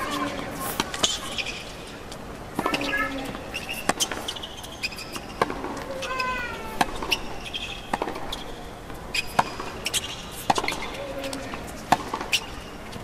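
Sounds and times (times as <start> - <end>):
shoes squeaking on court: 0.0 - 13.0
racket hitting tennis ball: 2.6 - 4.4, 5.1 - 8.4, 9.2 - 12.6.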